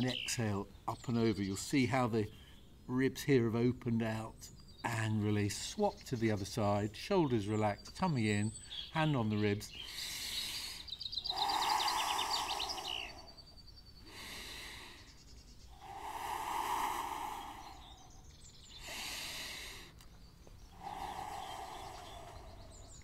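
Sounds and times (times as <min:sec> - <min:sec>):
bird trilling chirps: 0:04.5 - 0:23.0
man breathing deeply: 0:09.8 - 0:23.0.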